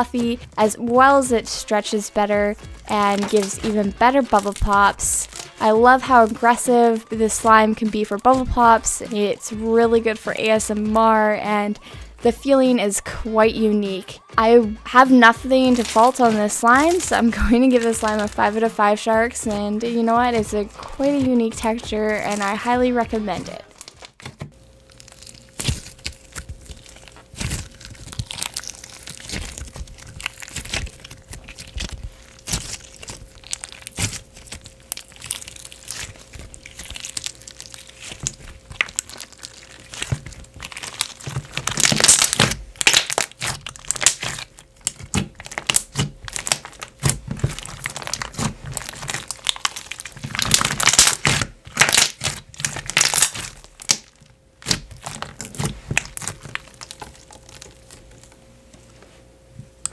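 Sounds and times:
slime bubble pops and crackles: 0:25.2 - 0:57.8.

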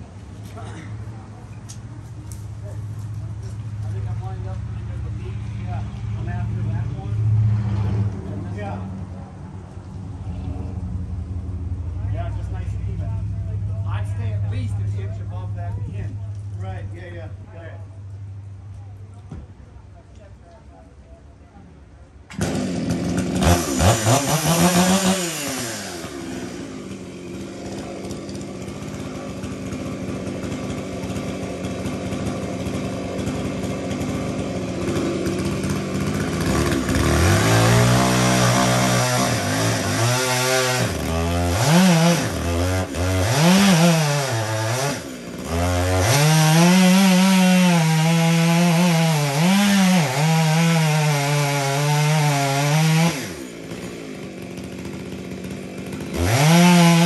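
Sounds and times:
chainsaw idling and revving: 0:00.0 - 0:09.1, 0:22.3 - 0:57.0
chainsaw cutting wood: 0:22.3 - 0:57.0.

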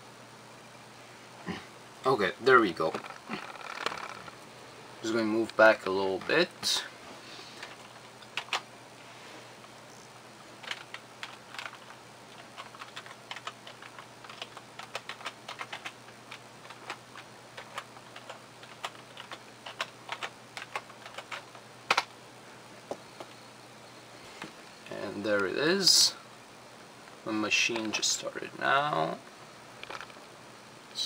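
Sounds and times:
faint low hum: 0:00.0 - 0:31.0
keyboard typing: 0:07.6 - 0:08.6, 0:10.6 - 0:22.1.

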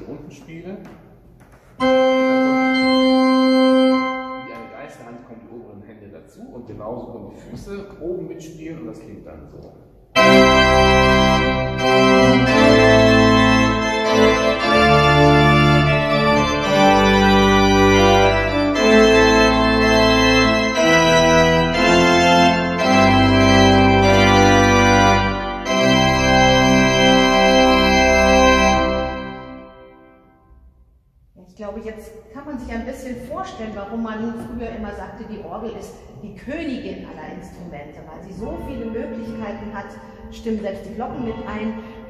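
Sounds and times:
pipe organ chords: 0:01.8 - 0:05.0, 0:10.1 - 0:30.7.

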